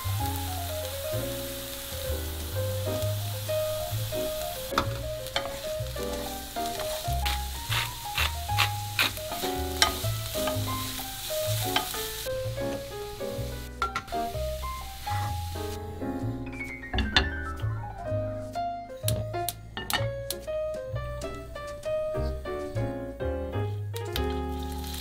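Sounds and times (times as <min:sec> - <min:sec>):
vegetables sizzling in a frying pan: 0:00.0 - 0:16.0, 0:24.2 - 0:25.0
background music: 0:00.0 - 0:25.0.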